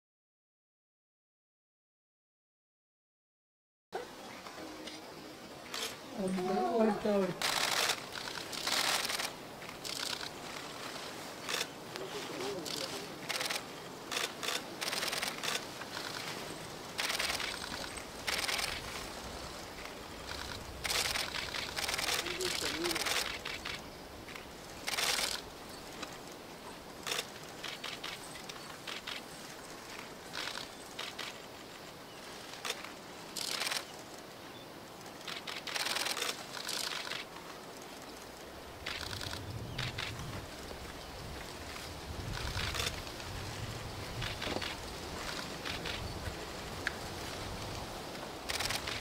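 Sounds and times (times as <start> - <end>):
crackling rustle: 4.0 - 49.0
camera shutter bursts: 5.7 - 6.0, 7.4 - 10.3, 12.4 - 16.2, 17.0 - 18.9, 20.3 - 23.8, 24.8 - 25.4, 32.6 - 34.0, 35.2 - 37.3, 38.8 - 40.2, 48.5 - 49.0.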